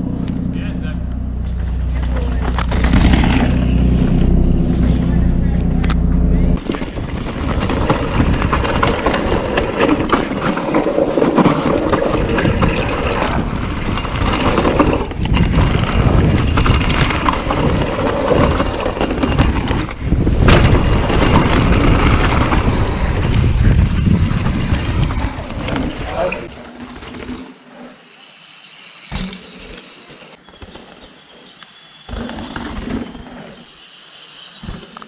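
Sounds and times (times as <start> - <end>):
tyres rumbling on dirt: 0.0 - 27.7
bike rattling over bumps: 1.4 - 27.6
wind buffeting microphone: 6.5 - 10.2, 11.8 - 26.5.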